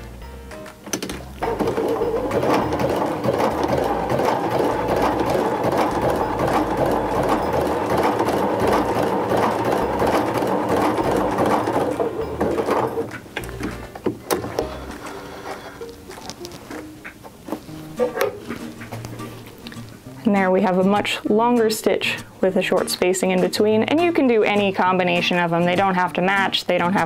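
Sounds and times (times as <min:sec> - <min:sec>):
sewing machine running: 0:01.4 - 0:13.1.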